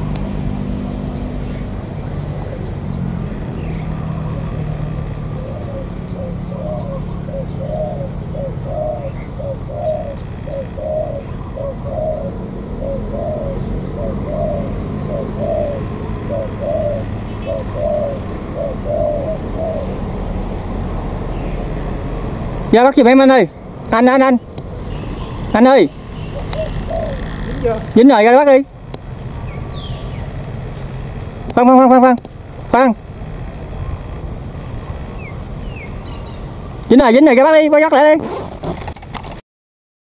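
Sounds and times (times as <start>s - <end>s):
dove cooing: 0.0s - 22.7s, 24.4s - 28.2s
steady low hum: 0.0s - 36.9s.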